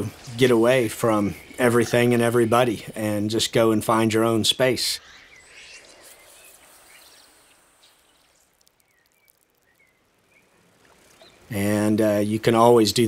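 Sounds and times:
high bird chirps: 4.9 - 11.5
stream water hiss: 5.0 - 11.9.

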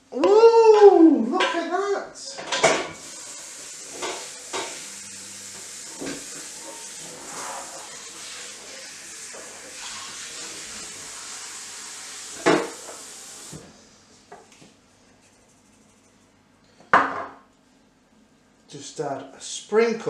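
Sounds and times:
kitchenware knocking: 0.3 - 1.7, 17.0 - 17.4
food sizzling in a pan: 2.5 - 13.9.

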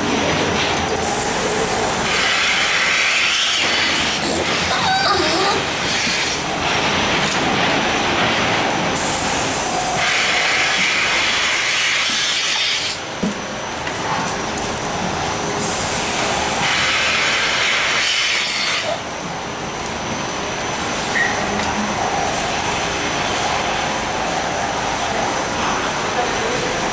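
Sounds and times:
milking machinery vacuum hiss: 1.0 - 6.5, 9.0 - 13.1, 15.6 - 19.0.

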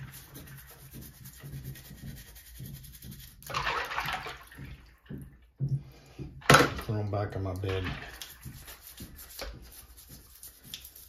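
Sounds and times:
toothbrush scrubbing keycaps: 0.0 - 3.5, 8.2 - 11.0
water sloshing in sink: 0.0 - 11.0.

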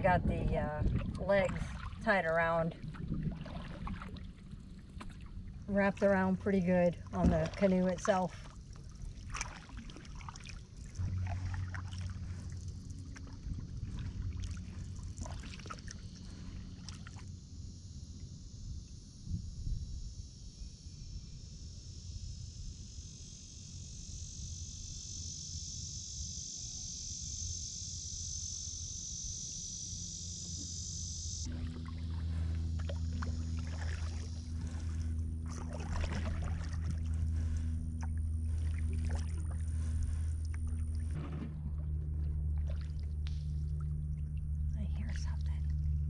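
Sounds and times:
low rumble: 0.0 - 22.2, 31.4 - 46.0
paddle swishing and dripping water: 0.8 - 17.3, 31.4 - 44.7.

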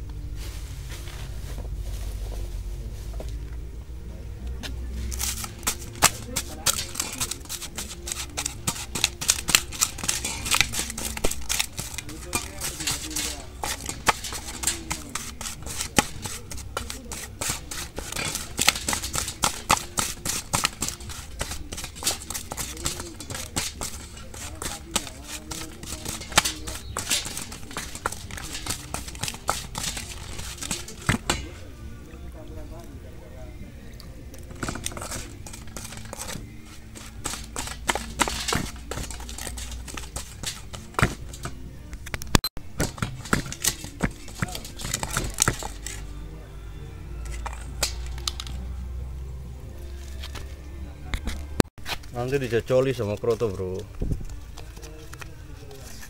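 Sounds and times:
spoon scraping metal bowl: 5.0 - 31.8, 34.4 - 41.6.

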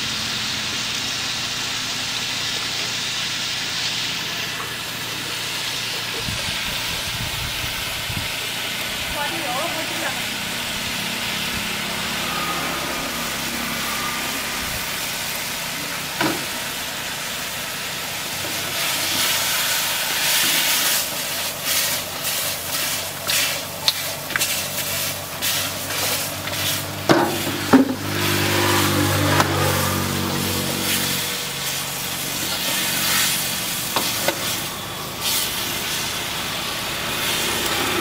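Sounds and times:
food sizzling in a wok: 0.0 - 38.0
ladle scraping a pan: 18.5 - 29.4.

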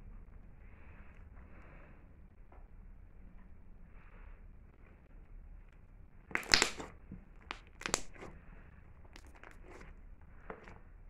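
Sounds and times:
slime crackling pops: 6.3 - 8.3.

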